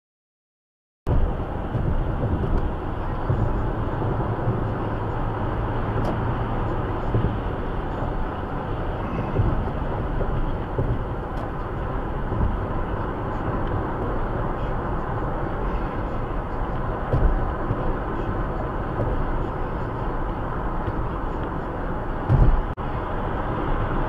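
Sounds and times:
car road and engine noise: 1.1s - 24.0s.

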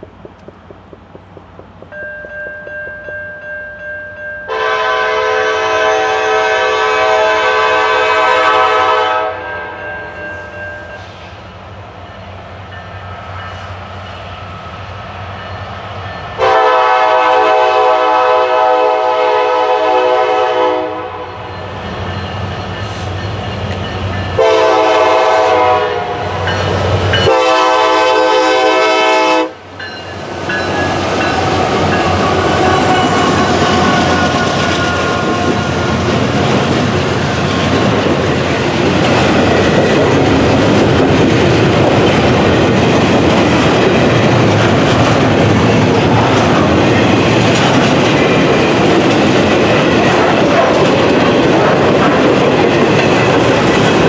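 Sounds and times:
locomotive engine noise: 0.0s - 3.8s
train wheel noise: 0.0s - 54.0s
locomotive air horn blasts: 4.5s - 11.0s, 16.4s - 21.5s, 24.4s - 26.4s, 27.2s - 29.6s, 32.1s - 35.8s.

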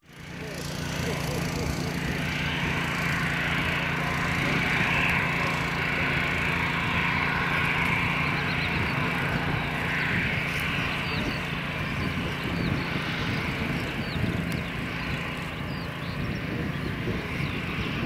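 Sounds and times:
jet engines whining: 0.0s - 18.0s
low hum: 0.0s - 18.0s.

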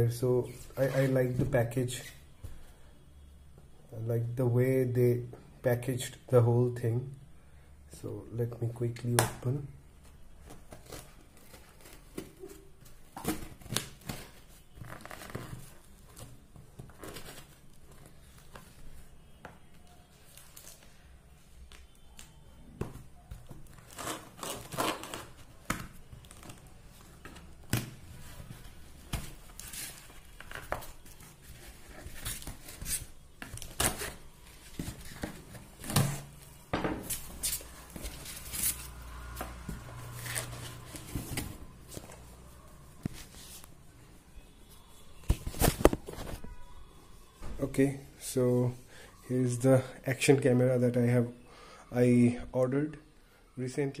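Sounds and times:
packing tape being cut and torn: 23.7s - 25.4s.

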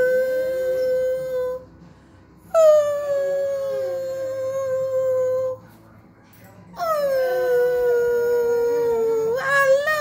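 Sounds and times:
dog howling: 0.0s - 1.6s, 6.8s - 10.0s.

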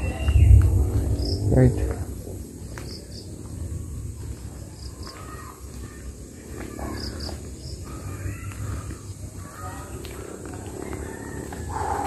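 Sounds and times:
birds chirping: 0.0s - 12.0s
steady low rumble: 0.0s - 12.0s.

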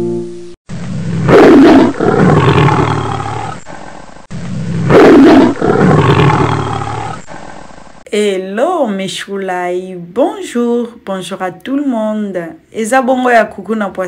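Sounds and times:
lion roar: 0.9s - 7.7s.

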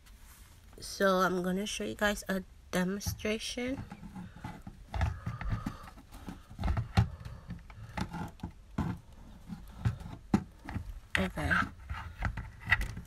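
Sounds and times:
handling thumps: 2.9s - 13.0s.

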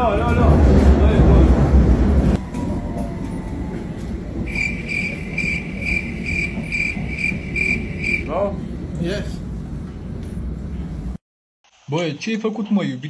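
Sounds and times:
low rumble of train carriage: 0.0s - 11.2s.

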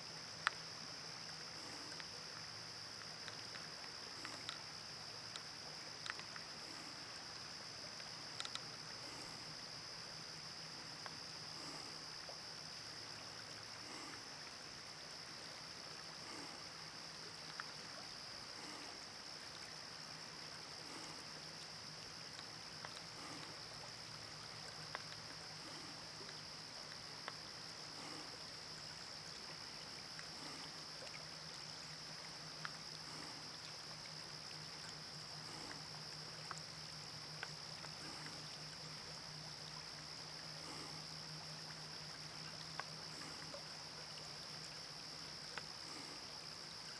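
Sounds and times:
high-pitched hiss: 0.0s - 46.9s
tiny ticks: 0.4s - 9.3s, 20.8s - 27.4s, 32.5s - 34.6s, 35.2s - 38.8s, 45.4s - 46.1s.

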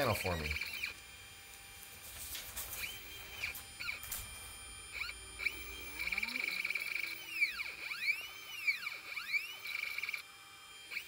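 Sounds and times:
laser cutter motors whining: 0.0s - 11.0s
steady high tone: 2.9s - 10.2s.

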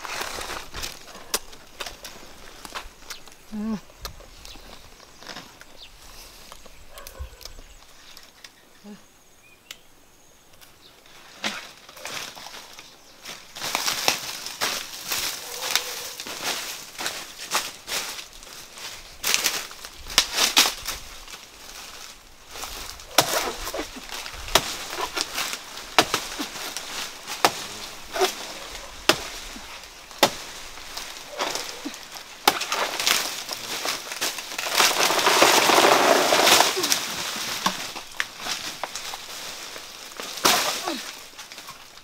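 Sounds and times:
machete chopping plant trunk: 23.1s - 39.1s, 40.2s - 41.1s.

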